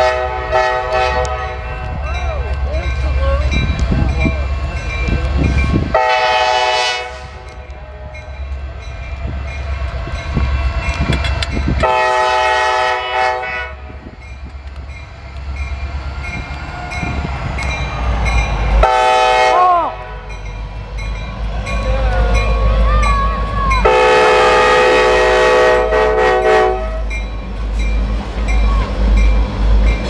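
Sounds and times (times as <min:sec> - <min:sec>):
locomotive air horn: 0:00.0 - 0:01.6, 0:05.9 - 0:08.2, 0:11.8 - 0:14.0, 0:18.8 - 0:20.2, 0:23.8 - 0:27.1
train wheels on rails: 0:00.0 - 0:30.0.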